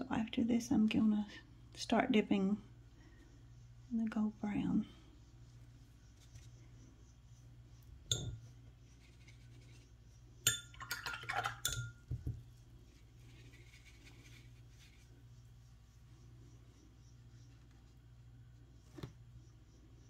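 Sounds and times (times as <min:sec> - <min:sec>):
glass or ceramic clinks: 0:10.5 - 0:11.0, 0:11.6 - 0:12.0.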